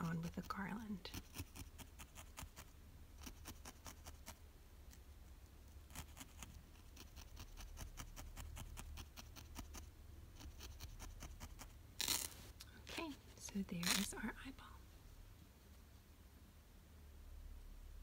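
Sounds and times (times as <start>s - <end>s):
felting needle poking wool: 0.0s - 14.2s
low steady hum: 0.0s - 18.0s.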